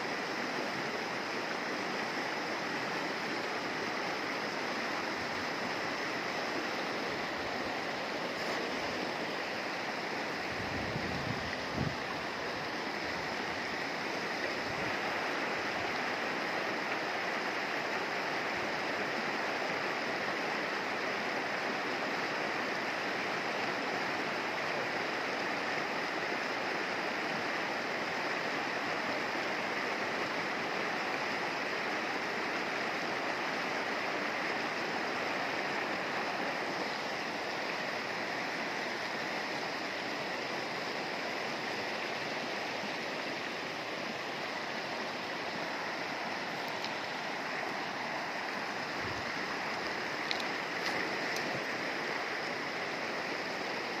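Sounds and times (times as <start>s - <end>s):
river running over rocks: 0.0s - 54.0s.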